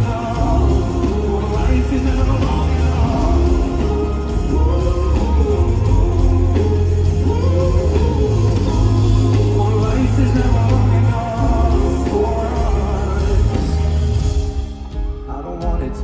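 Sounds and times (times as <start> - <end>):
live band music: 0.0 - 16.0.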